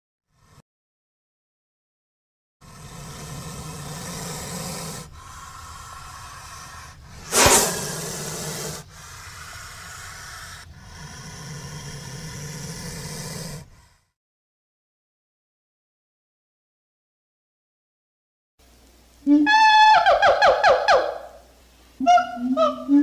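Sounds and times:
snake hissing: 0:00.3 - 0:00.6, 0:02.6 - 0:14.2.

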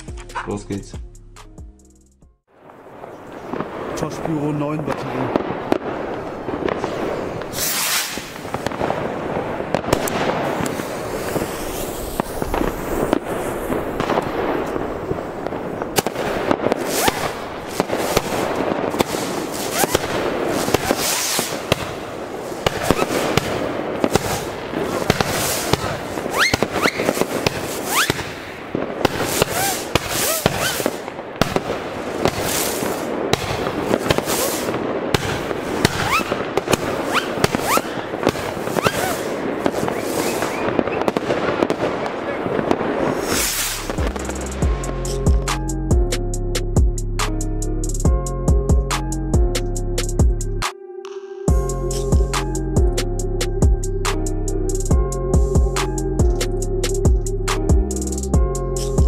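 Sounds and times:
firework launch shots: 0:02.6 - 0:45.6
short rising firework whistles: 0:07.5 - 0:08.7, 0:10.4 - 0:14.1, 0:16.7 - 0:21.8, 0:22.5 - 0:28.4, 0:29.0 - 0:31.1, 0:32.2 - 0:33.1, 0:33.9 - 0:41.2, 0:43.1 - 0:45.2.

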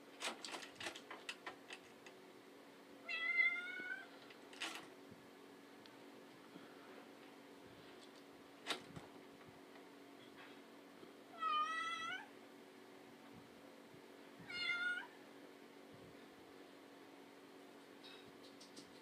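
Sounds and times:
faint steady hum: 0:00.0 - 0:19.0
cat meowing: 0:03.0 - 0:04.1, 0:11.4 - 0:12.3, 0:14.4 - 0:15.1.

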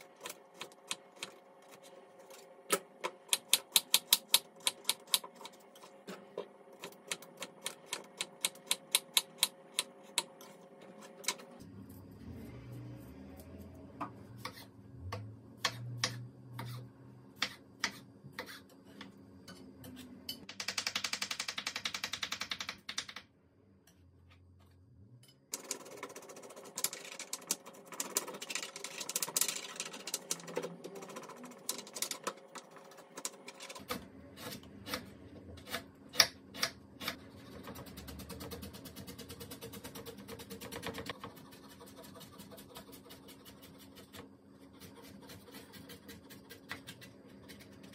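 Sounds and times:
knife scraping ginger skin: 0:37.0 - 0:47.9.

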